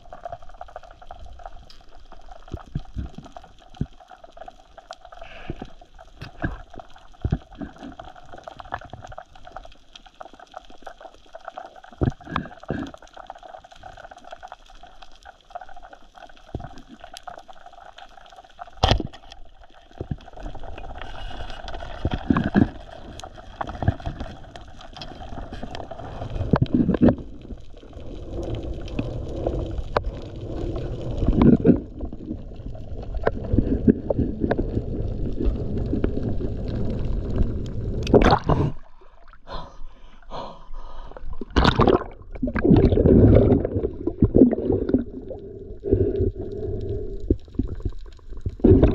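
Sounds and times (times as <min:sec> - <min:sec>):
water rushing and gurgling: 0:41.3 - 0:48.9.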